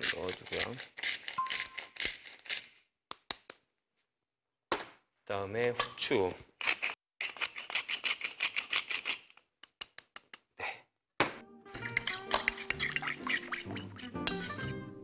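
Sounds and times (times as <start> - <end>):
pepper mill grinding: 0.0 - 2.8, 6.6 - 9.4, 11.8 - 14.7
metal spoon clinking ceramic bowl: 11.8 - 14.8.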